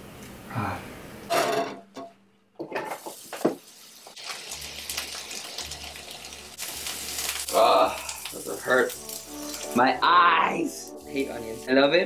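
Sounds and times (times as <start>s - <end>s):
onions hitting frying pan: 1.3s - 6.0s
onions sizzling in oil: 2.8s - 12.0s.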